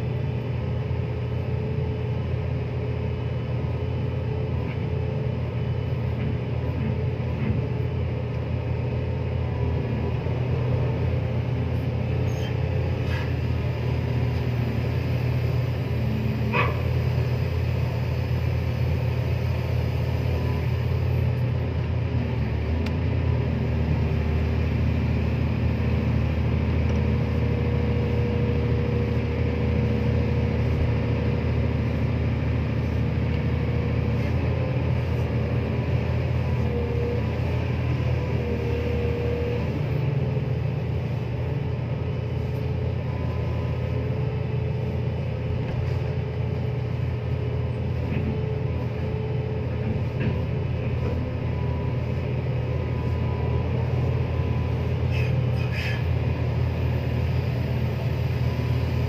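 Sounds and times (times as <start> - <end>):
excavator diesel engine rumbling: 0.0 - 59.0.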